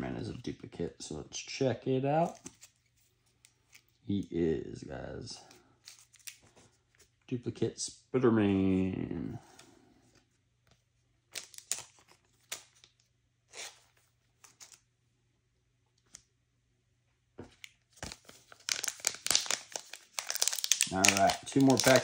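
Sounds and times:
plastic card sleeves rustling: 2.2 - 4.0, 5.3 - 7.2, 10.1 - 14.9, 17.4 - 22.0
foil packs crinkling: 11.4 - 12.9, 18.0 - 22.0.

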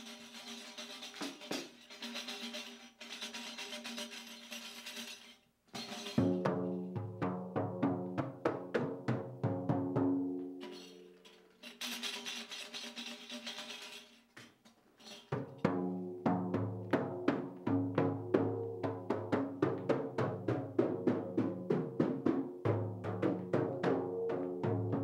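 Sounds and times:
frame drum beating: 5.8 - 10.6, 15.3 - 25.0.

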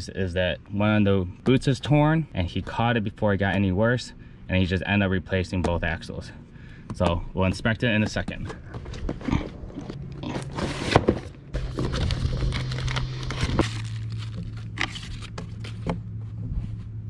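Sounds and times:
low steady hum: 0.0 - 17.0
cardboard flaps scraping: 8.6 - 17.0
packing paper crinkling: 8.8 - 15.9.

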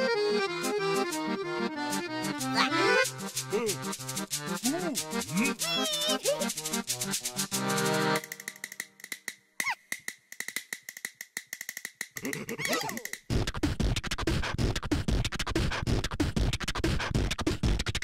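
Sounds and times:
quick ticking clicks: 0.6 - 13.3
gliding squeaky cartoon sounds: 9.6 - 9.8, 12.6 - 13.2
electronic beat with deep bass: 13.3 - 18.0.

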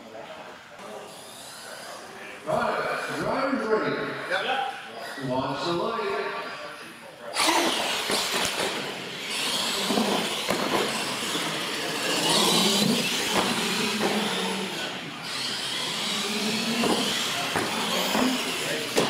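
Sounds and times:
toy truck motors whining: 7.3 - 19.0.

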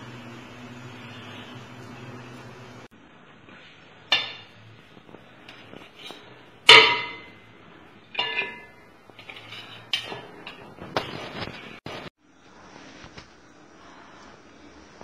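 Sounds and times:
metal ladle clinking: 8.1 - 10.6.

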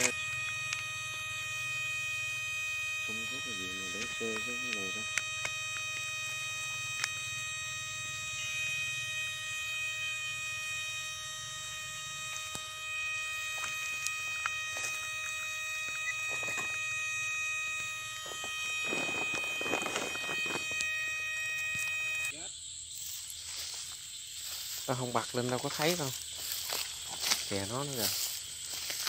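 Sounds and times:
low hum: 0.0 - 22.3
electric shocker high whine: 0.0 - 22.4
rustling crackling noise: 18.2 - 20.9.

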